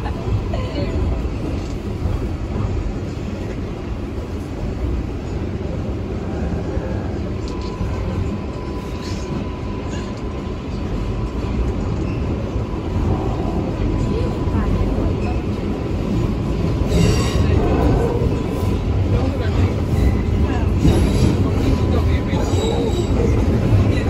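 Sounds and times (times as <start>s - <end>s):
subway wheels rumbling on track: 0.0s - 24.0s.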